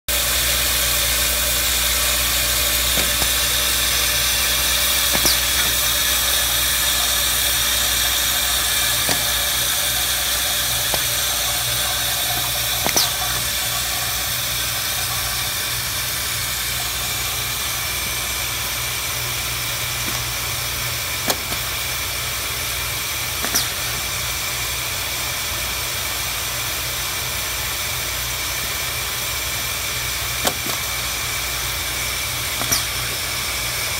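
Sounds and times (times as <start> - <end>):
vibratory feeder hum: 0.1 - 26.5, 28.3 - 33.9
hiss of shaken metal parts: 1.0 - 18.2, 23.4 - 24.0, 32.5 - 33.6.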